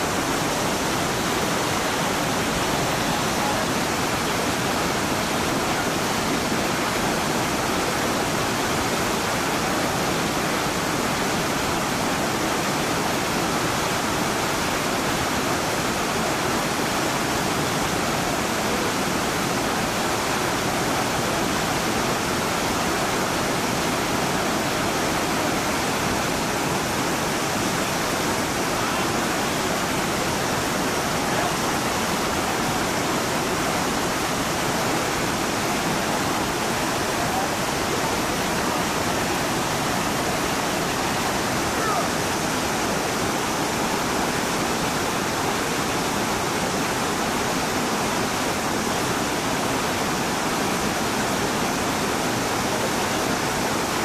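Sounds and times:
whitewater rushing over rocks: 0.0s - 54.0s.

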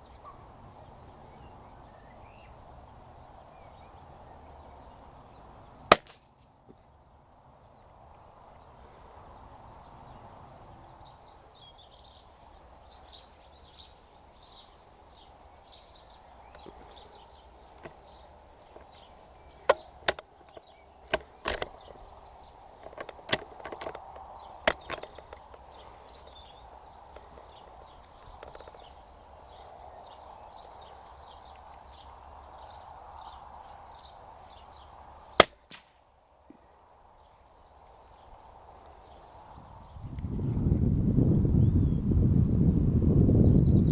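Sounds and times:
birds chirping: 0.0s - 40.8s
rifle bolt metallic clicks: 5.9s - 6.2s, 19.6s - 22.0s, 22.8s - 25.5s, 35.4s - 35.9s.

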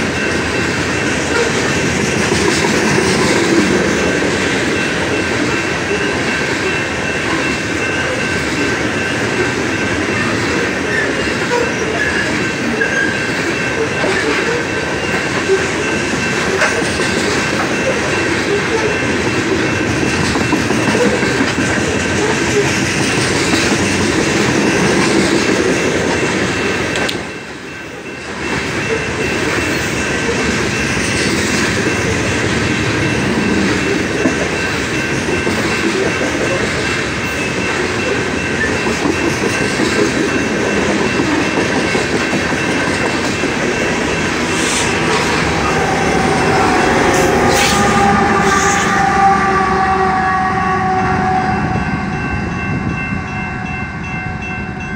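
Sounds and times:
train wheels rumbling on rails: 0.0s - 54.9s
high ringing tone: 24.0s - 54.9s.

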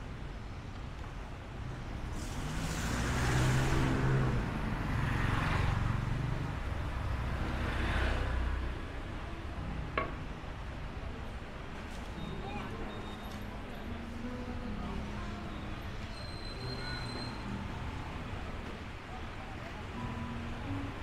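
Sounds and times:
motor vehicles passing: 1.6s - 10.7s.

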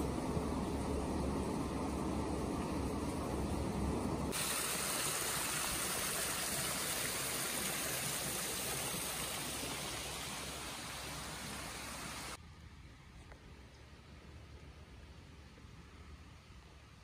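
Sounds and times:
river water over rocks: 0.0s - 12.4s.

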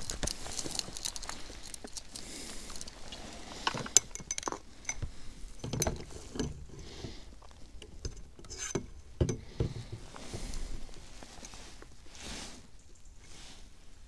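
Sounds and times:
fishing tackle clicking and knocking: 3.6s - 6.8s.

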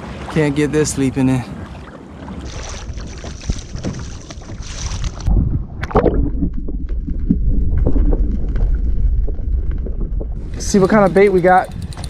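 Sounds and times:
wind on open sea: 0.0s - 12.0s
bubbly crackles underwater: 2.5s - 10.6s
muffled underwater rumble: 2.8s - 12.0s.

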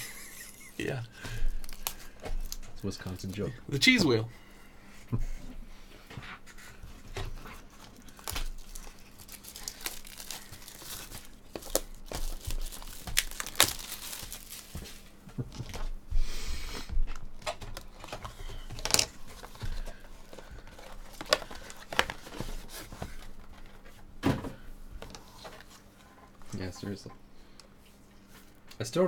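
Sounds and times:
foil wrappers crinkling: 0.0s - 4.2s, 7.0s - 15.9s, 17.1s - 23.8s
foil wrapper tearing: 1.5s - 3.4s, 7.7s - 15.1s, 20.2s - 22.4s.

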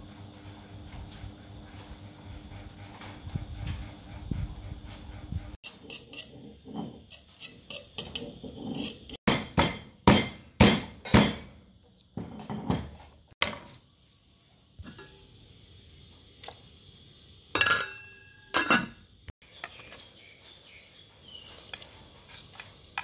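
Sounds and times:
pestle thudding on wooden board: 9.3s - 11.5s.

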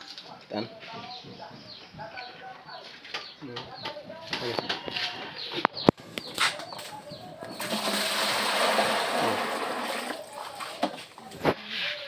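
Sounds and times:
water rushing: 7.7s - 10.7s.

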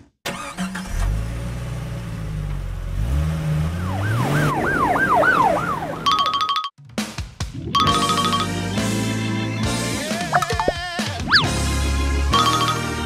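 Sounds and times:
emergency siren wailing: 3.8s - 6.2s.

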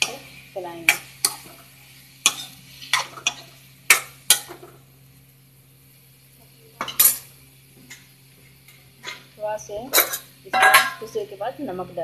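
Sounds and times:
steel spoon scraping a pan: 0.0s - 4.6s, 9.0s - 9.3s, 9.9s - 11.1s.

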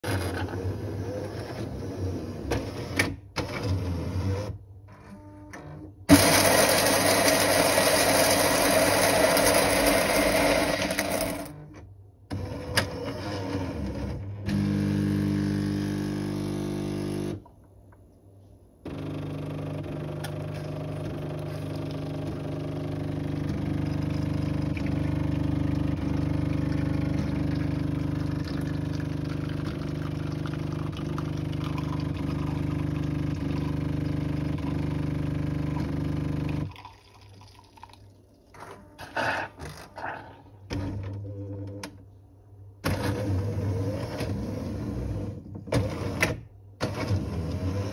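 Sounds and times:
coffee grinder grinding beans: 6.1s - 11.6s
water pump humming: 18.9s - 38.7s.

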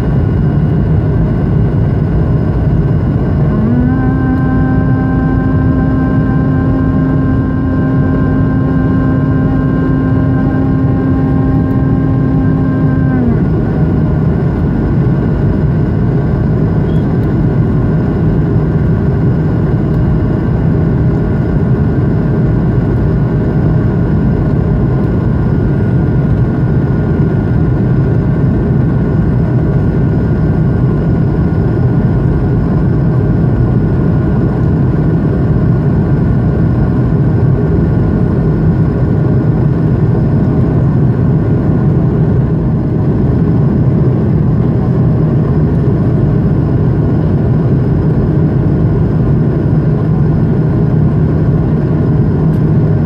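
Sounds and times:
jet engine cabin rumble: 0.0s - 53.0s
faint steady tones: 3.3s - 14.2s.

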